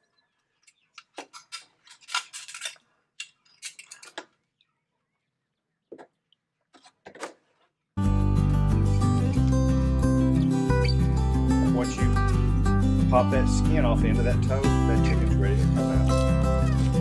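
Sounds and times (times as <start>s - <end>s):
guitar music: 8.0s - 17.0s.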